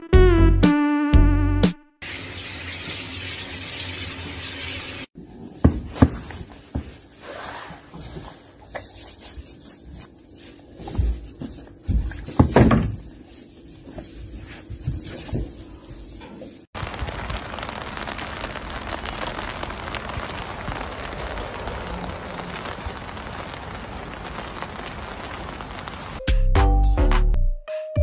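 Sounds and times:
handling knocks and bumps: 0:05.4 - 0:07.1, 0:09.2 - 0:16.6.

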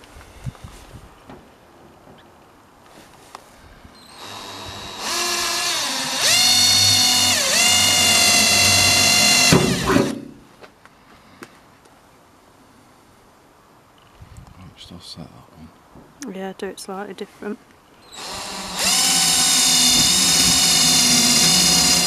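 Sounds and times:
cordless drill drilling into metal: 0:04.0 - 0:10.3, 0:18.1 - 0:22.0.

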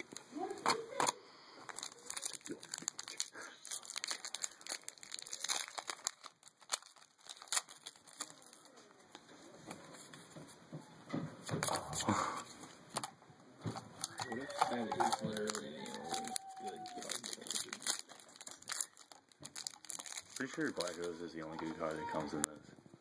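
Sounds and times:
foil wrappers crinkling: 0:00.0 - 0:10.1, 0:13.9 - 0:22.6
cards rustling with quick clicks: 0:13.7 - 0:22.4.

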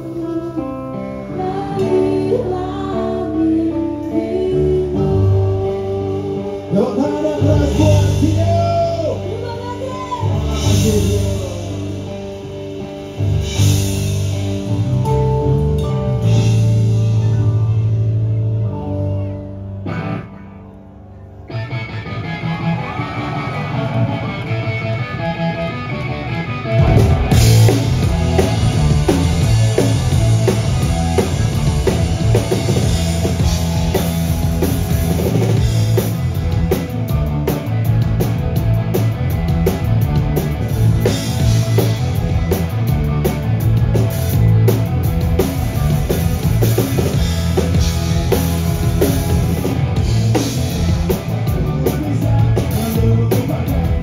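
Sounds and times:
live punk rock band: 0:00.0 - 0:54.0
hard driving drumming: 0:07.0 - 0:15.4, 0:26.6 - 0:54.0.

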